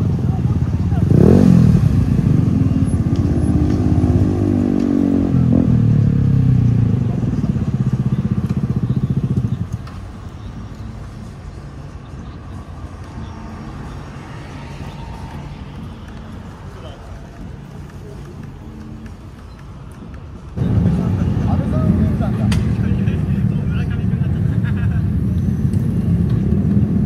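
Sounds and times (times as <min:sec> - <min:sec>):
scooter engine running: 0:05.3 - 0:09.8.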